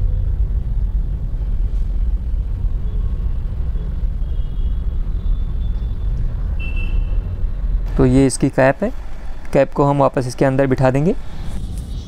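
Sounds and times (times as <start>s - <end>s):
deep background rumble: 0.0s - 4.3s.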